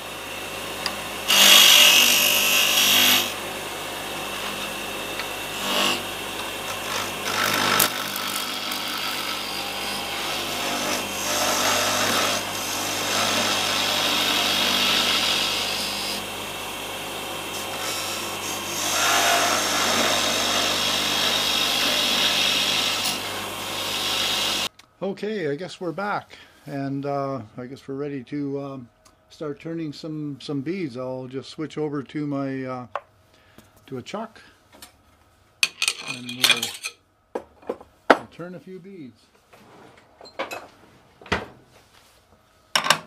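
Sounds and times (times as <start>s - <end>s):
wood lathe humming: 0.0s - 24.7s
turning tool scraping wood: 4.2s - 16.2s.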